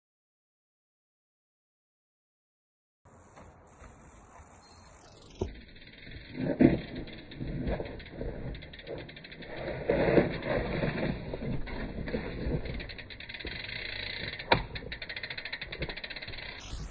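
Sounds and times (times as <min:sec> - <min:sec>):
bicycle freehub ticking: 0:03.1 - 0:16.9
bike tyres bumping over rocks: 0:03.3 - 0:16.6.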